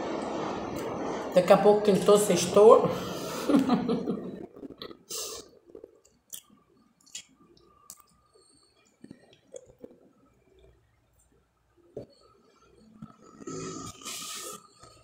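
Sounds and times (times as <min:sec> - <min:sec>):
person chewing: 0:08.8 - 0:10.7.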